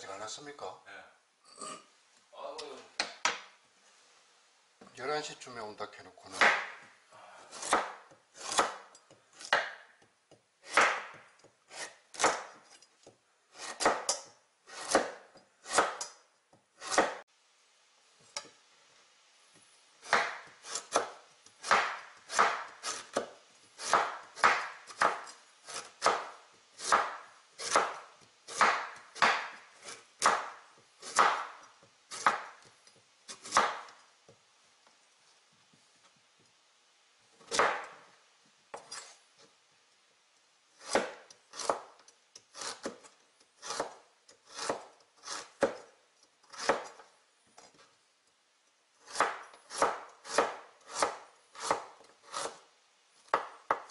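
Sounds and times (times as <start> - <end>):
knife chopping on wooden board: 6.3 - 17.2, 20.0 - 34.0, 37.4 - 38.0, 40.8 - 45.9, 46.5 - 47.0, 49.0 - 52.6, 53.3 - 53.9.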